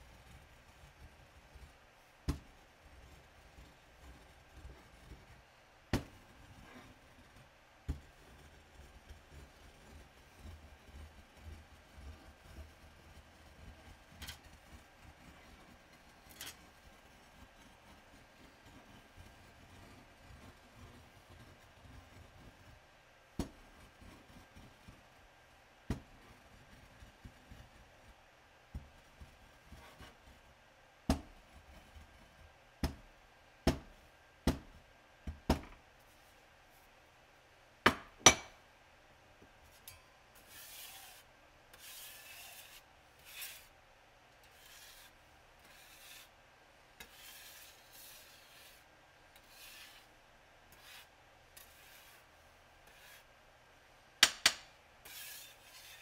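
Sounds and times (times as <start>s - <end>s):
rubbing scraping strokes: 40.4s - 41.2s, 41.8s - 43.7s, 55.0s - 56.0s.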